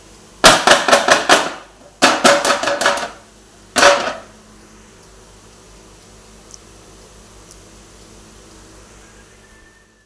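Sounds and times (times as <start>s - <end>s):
metal baking tin knocking on tray: 0.5s - 3.2s.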